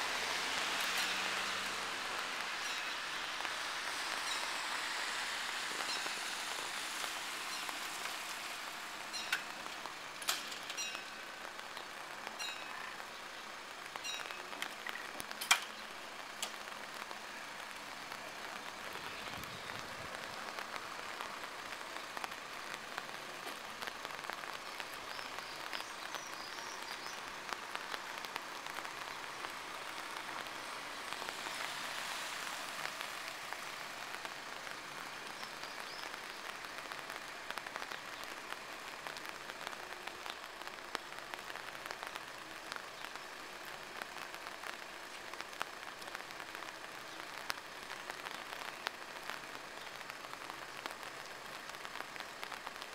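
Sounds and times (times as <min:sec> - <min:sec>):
steady rain falling: 0:00.0 - 0:52.9.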